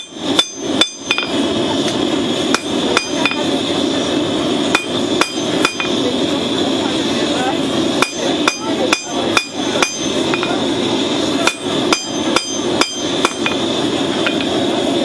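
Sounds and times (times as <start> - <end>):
hammer clanging on anvil: 0.0 - 1.4, 2.5 - 3.4, 4.7 - 6.0, 8.0 - 10.6, 11.4 - 13.6
steady rushing noise: 0.0 - 15.0.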